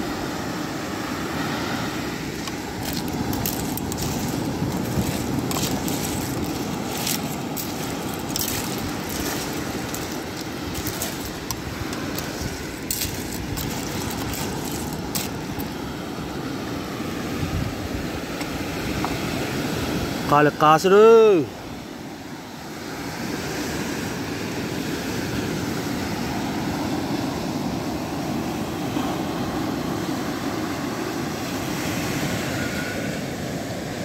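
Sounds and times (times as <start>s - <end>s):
pot boiling hard: 2.4s - 15.8s.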